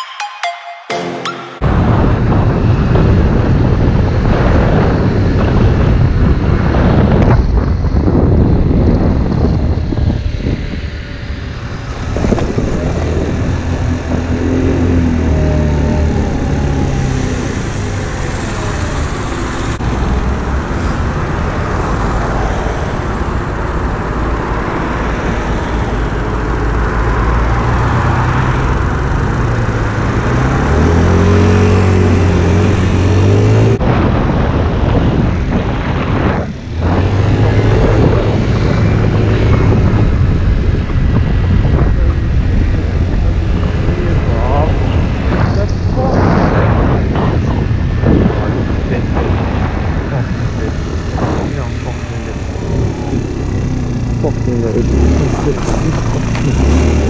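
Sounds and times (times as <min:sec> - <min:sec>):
wind rushing over microphone: 0:01.6 - 0:57.0
moped engine: 0:09.4 - 0:33.8, 0:48.4 - 0:57.0.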